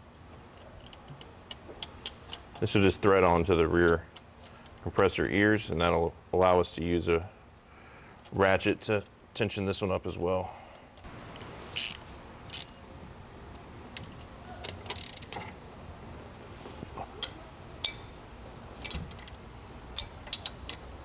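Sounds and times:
faint steady hum: 0.0 - 21.0
metal tools clinking on metal: 17.2 - 18.1, 19.9 - 20.9.

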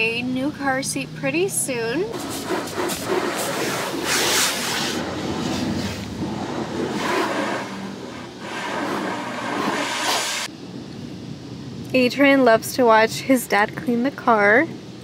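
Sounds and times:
spray water hissing on car: 2.1 - 10.5.

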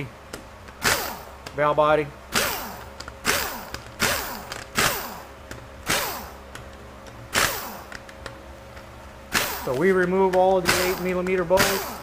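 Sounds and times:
power tool spinning bolts out: 7.3 - 7.9.

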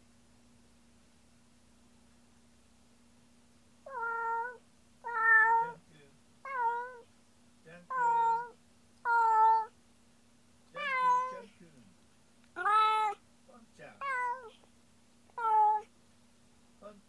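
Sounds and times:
cat meowing: 3.9 - 5.8, 6.4 - 7.1, 7.9 - 9.7, 10.8 - 11.5, 12.6 - 13.2, 14.0 - 14.6, 15.3 - 15.9.

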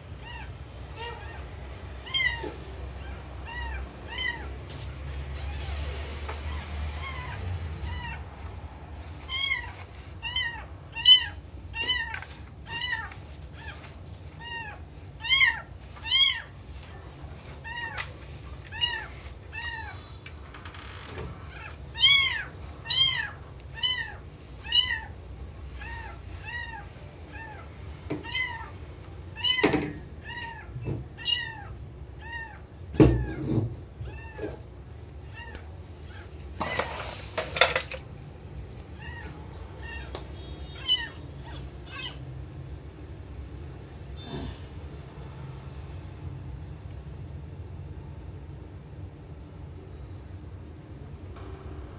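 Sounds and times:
cat meowing: 0.2 - 4.6, 5.4 - 8.4, 9.2 - 16.6, 17.6 - 20.2, 20.8 - 37.0, 38.8 - 42.3.

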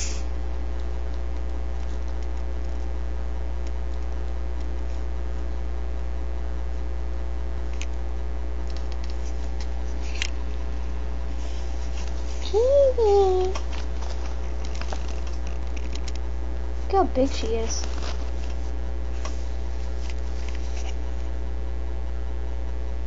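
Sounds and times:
electrical hum: 0.0 - 23.0
faint scratches and clicks: 0.3 - 3.0, 3.6 - 6.1, 7.7 - 10.6, 13.4 - 16.3, 17.4 - 21.4.

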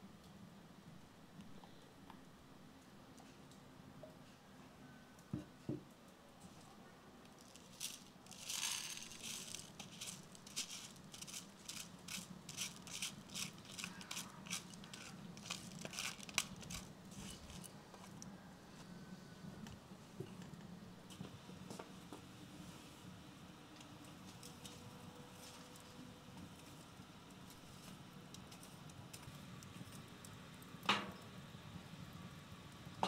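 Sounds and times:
wooden spoon scraping colander: 7.4 - 18.2.

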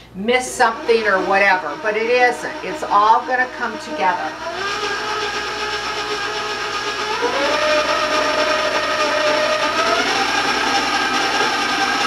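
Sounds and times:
stand mixer motor whining: 0.6 - 12.0.

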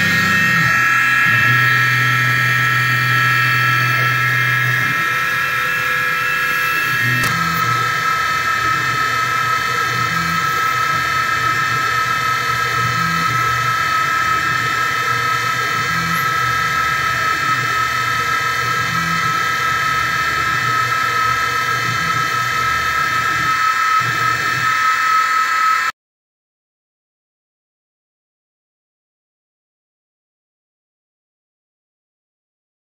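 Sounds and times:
cnc mill cutting plastic: 0.0 - 26.0.

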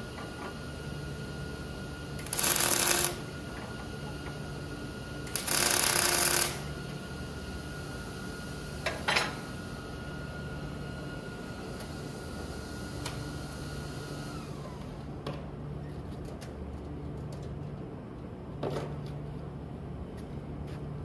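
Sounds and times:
steady background hum: 0.0 - 21.0
arc welding bursts: 2.2 - 3.3, 5.2 - 6.8.

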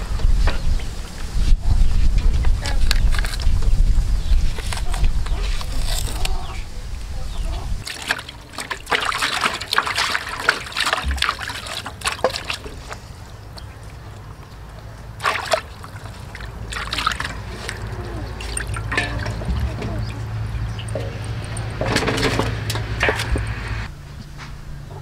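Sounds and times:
water splashing in metal basin: 7.8 - 14.4, 15.0 - 23.6.

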